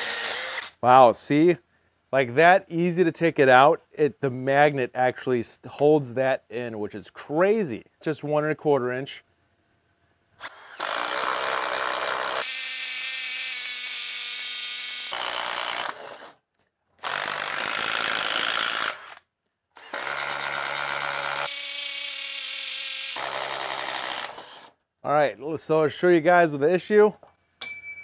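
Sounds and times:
impact driver boring through wood: 0.0s - 0.8s, 10.4s - 16.4s, 17.0s - 24.8s.

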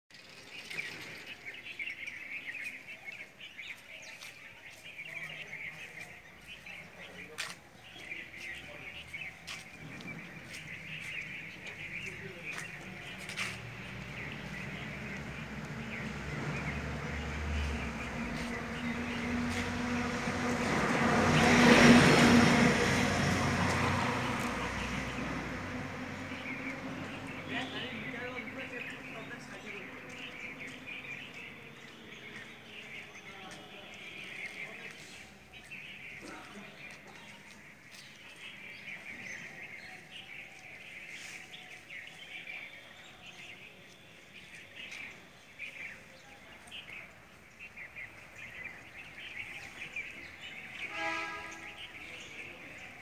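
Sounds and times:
small birds chirping: 0.1s - 20.7s, 21.3s - 53.0s
vehicle passing by: 8.7s - 31.7s.

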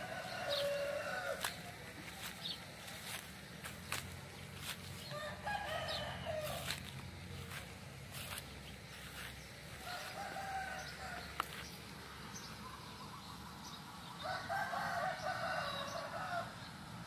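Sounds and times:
rooster crowing: 0.0s - 2.2s, 5.0s - 7.6s, 9.8s - 11.5s, 14.2s - 16.6s.

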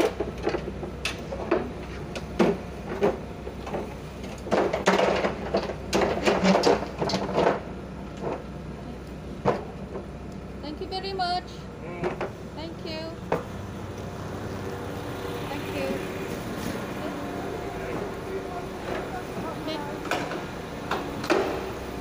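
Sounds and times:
ramp knocking and clattering: 0.0s - 8.4s, 17.8s - 21.8s
steady low hum: 0.0s - 22.0s.

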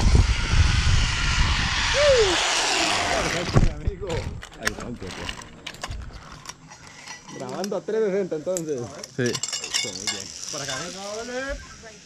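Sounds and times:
metal pulley and clips clinking: 4.4s - 7.8s, 8.5s - 11.0s.

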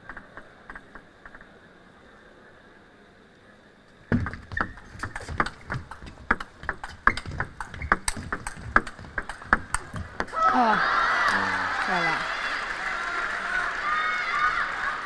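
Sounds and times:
table tennis ball clicking: 4.2s - 10.4s.

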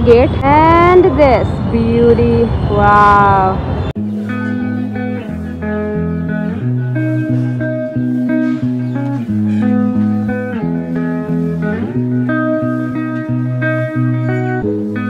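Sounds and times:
guitar background music with bass: 4.0s - 15.0s.

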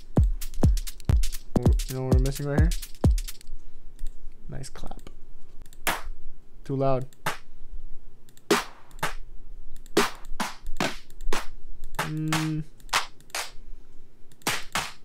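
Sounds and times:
drum machine clap hits: 0.0s - 3.4s, 5.9s - 6.1s, 7.2s - 7.4s, 8.5s - 9.2s, 9.9s - 13.6s, 14.4s - 15.0s.

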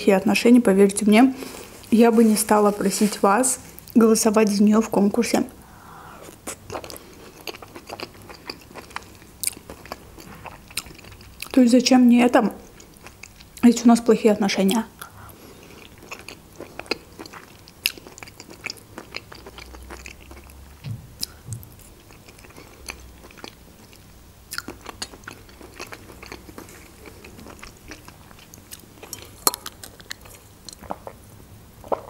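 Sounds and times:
chewing soft mushrooms: 6.1s - 11.7s, 14.6s - 31.2s
wet mouth clicks: 19.9s - 22.0s.

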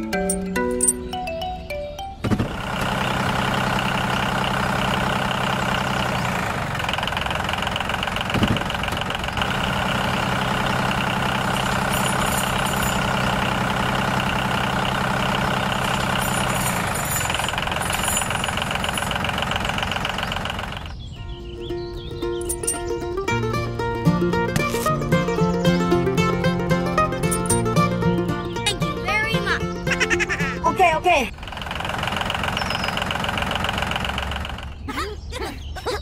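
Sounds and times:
tractor engine chugging: 2.2s - 21.2s, 22.1s - 34.9s.

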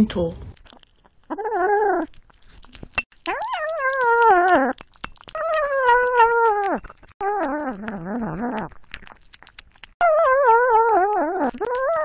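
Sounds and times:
cat chewing clicks: 2.1s - 10.0s.

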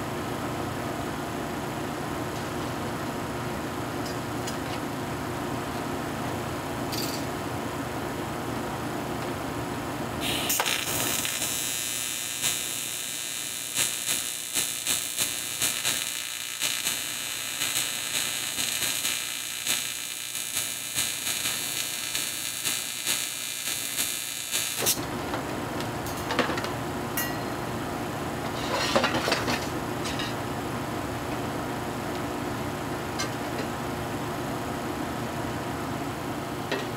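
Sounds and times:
welding arc hissing: 10.2s - 25.0s.

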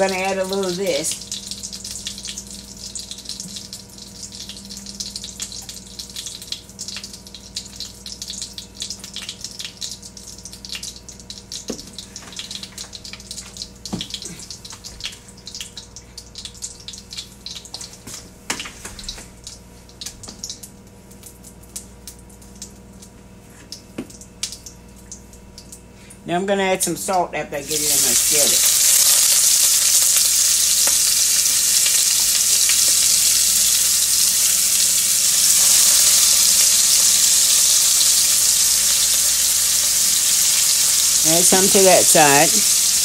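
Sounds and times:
butter and oil sizzling in skillet: 0.0s - 17.8s, 27.5s - 43.0s.

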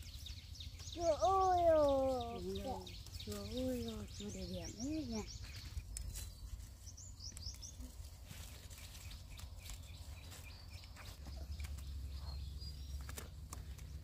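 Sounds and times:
bird chirps: 0.0s - 14.0s
small rustles and clicks: 2.5s - 12.2s, 12.9s - 14.0s.

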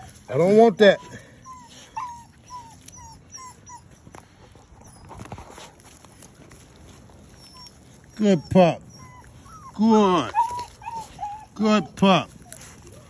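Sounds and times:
puppy whimpering: 0.0s - 5.4s, 7.2s - 13.0s
faint clicks and rustles: 1.4s - 8.1s, 12.3s - 13.0s.

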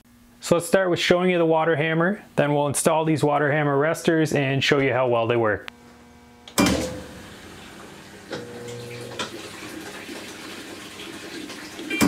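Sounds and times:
water hammer bang in pipes: 6.6s - 7.3s
water rushing into tub: 6.7s - 12.0s.

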